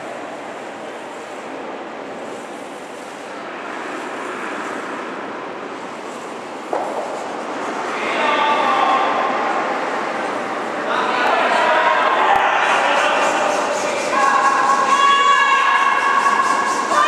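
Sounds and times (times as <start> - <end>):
steady rushing noise in ice hall: 0.0 - 17.0
sharp knock: 6.7 - 7.3.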